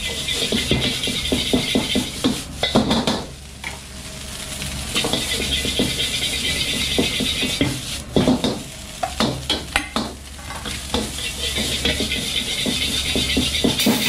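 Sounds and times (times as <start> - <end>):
metal ladle scraping a wok: 0.0 - 2.2, 4.9 - 7.8, 11.0 - 14.0
rice sizzling in a wok: 0.0 - 14.0.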